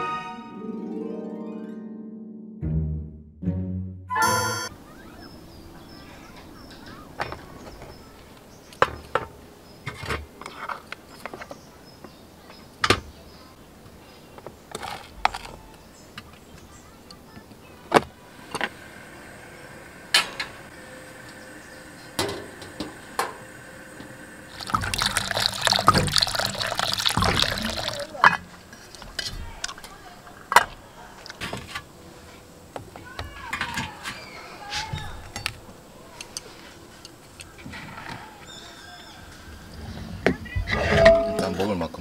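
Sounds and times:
soup boiling hard: 24.2s - 29.0s.

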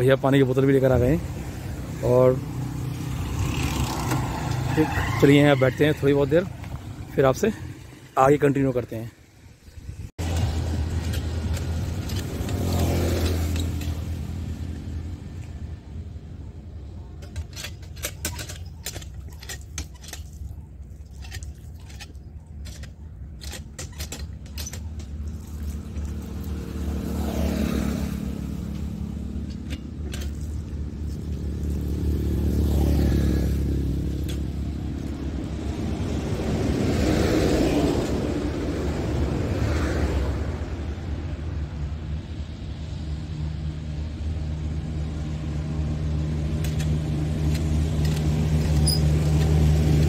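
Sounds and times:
vehicles passing: 0.0s - 50.0s
light clicks and rattles: 17.2s - 26.1s.

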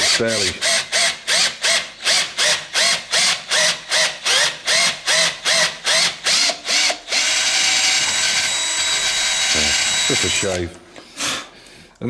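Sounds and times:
cordless drill whining: 0.0s - 10.6s.

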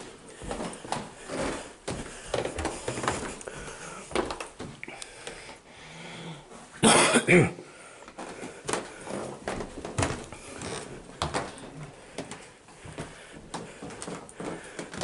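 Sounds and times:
footsteps down stairs: 0.0s - 5.6s, 7.6s - 15.0s
person coughing: 6.8s - 7.7s.

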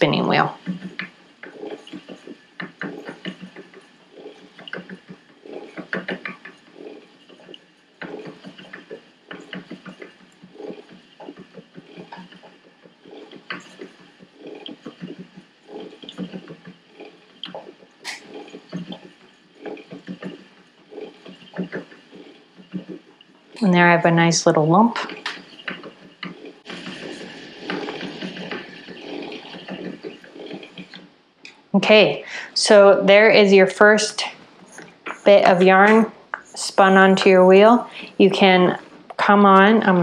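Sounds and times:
spinning wheel knocks and clicks: 0.0s - 31.6s.

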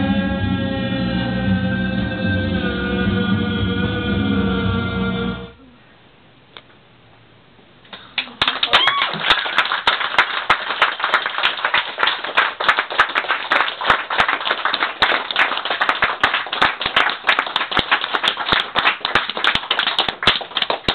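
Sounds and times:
audience clapping: 7.9s - 20.9s.

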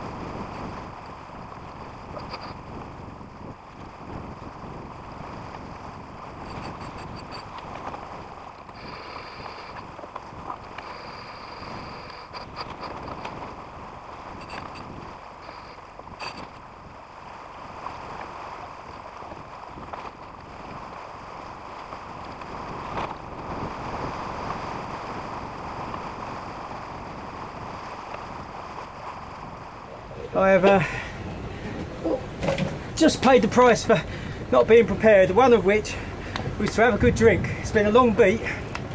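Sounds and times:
water washing along hull: 0.0s - 38.9s
wind on microphone: 0.0s - 38.9s
thin high whines: 8.8s - 9.8s.

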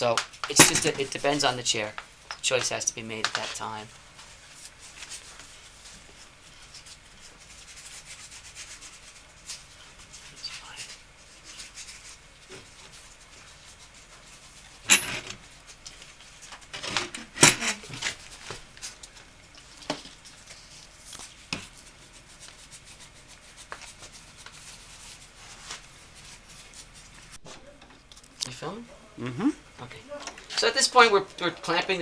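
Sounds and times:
cloth rag rubbing wood: 4.2s - 14.8s.

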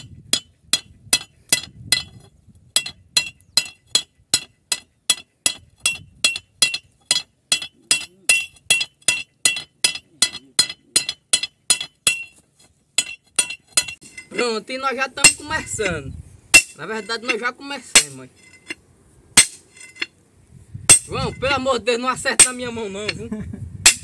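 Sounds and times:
hammer clinking on steel chisel: 0.0s - 12.4s, 13.0s - 14.4s.

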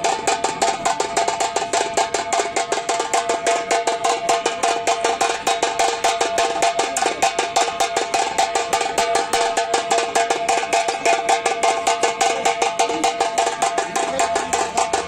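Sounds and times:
fast stick drumming: 0.0s - 15.0s.

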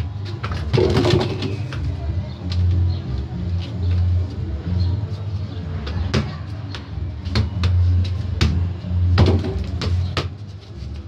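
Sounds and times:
football thudding off wall and floor: 9.2s - 10.3s.

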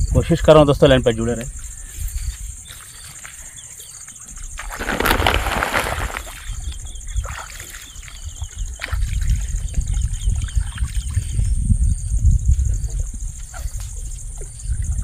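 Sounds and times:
footsteps wading through water: 4.6s - 6.5s.

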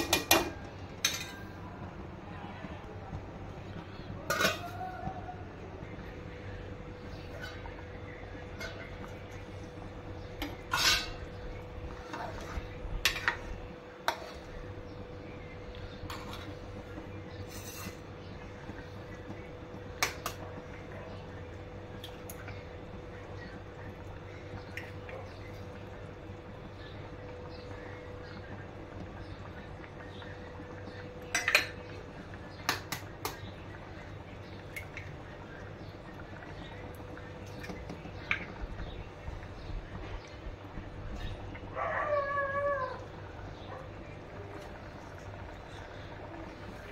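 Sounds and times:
ladle stirring and clinking pot: 0.0s - 1.5s, 4.2s - 4.8s, 7.0s - 15.0s, 15.6s - 18.8s, 31.2s - 32.0s
steady low hum: 0.0s - 46.9s
pot lid clattering: 10.5s - 11.3s.

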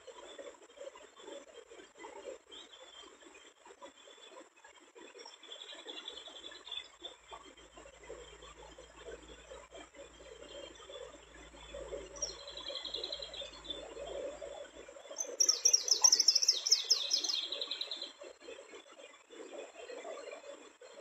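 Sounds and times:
bird calling high and thin: 15.2s - 17.7s.

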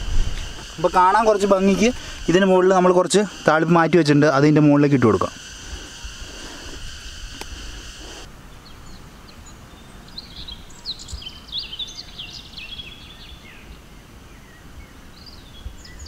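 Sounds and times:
high insect drone: 0.0s - 9.0s
small birds chirping: 0.0s - 16.0s.

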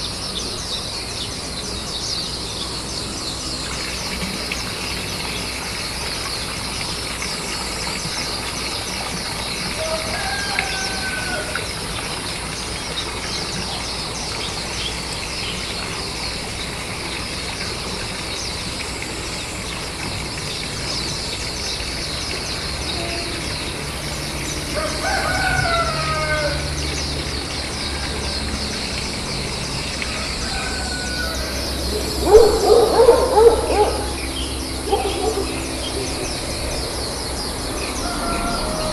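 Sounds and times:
insect chorus: 0.0s - 38.9s
distant rooster calls: 9.6s - 11.9s, 24.2s - 36.3s, 37.5s - 38.9s.

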